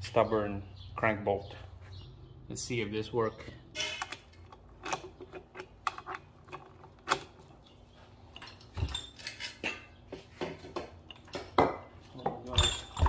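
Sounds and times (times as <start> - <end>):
metal tools clinking and rattling: 3.8 - 13.0.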